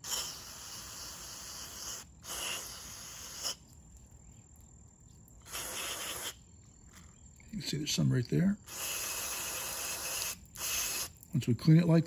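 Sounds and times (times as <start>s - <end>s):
aerosol spray hissing: 0.0s - 3.6s, 5.4s - 6.4s, 8.7s - 11.2s.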